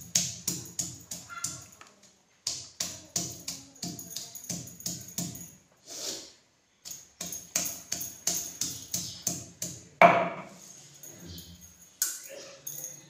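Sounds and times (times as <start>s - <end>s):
stone pestle pounding on slab: 7.2s - 10.5s.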